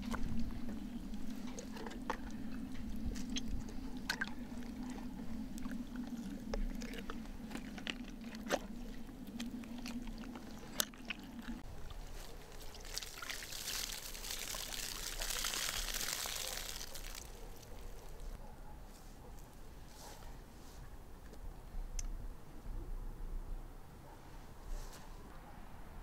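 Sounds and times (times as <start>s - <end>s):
low steady hum: 0.0s - 23.8s
water pouring and splashing: 7.5s - 18.0s.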